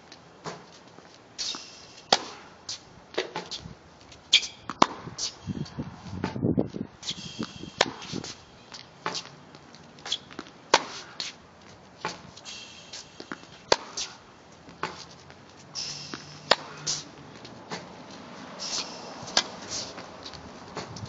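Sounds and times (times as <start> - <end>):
racket hitting tennis ball: 0.4 - 0.8, 1.4 - 3.6, 4.3 - 5.5, 7.0 - 21.0
shoe scuffs: 0.4 - 21.0
tennis ball bouncing: 1.4 - 3.6, 4.3 - 5.4, 7.7 - 15.4, 16.0 - 21.0.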